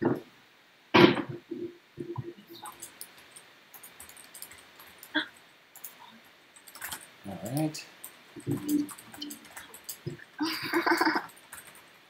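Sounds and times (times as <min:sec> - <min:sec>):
computer keyboard key clicks: 0:02.6 - 0:05.2, 0:06.6 - 0:07.1, 0:08.0 - 0:10.2.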